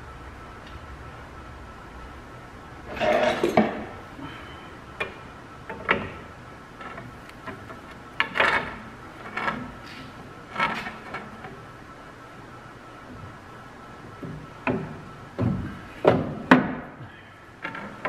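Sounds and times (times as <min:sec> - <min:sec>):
metal clunks and scrapes: 0:02.9 - 0:03.9, 0:06.8 - 0:11.5.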